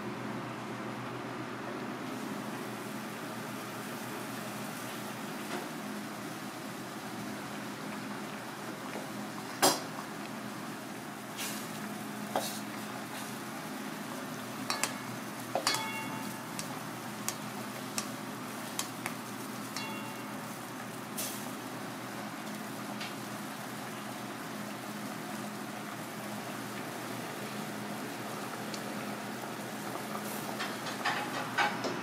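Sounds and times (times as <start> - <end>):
steady sizzling hiss: 0.0 - 32.0
low steady hum: 7.2 - 29.7
ladle clinking against pot: 14.7 - 16.7, 19.8 - 20.3.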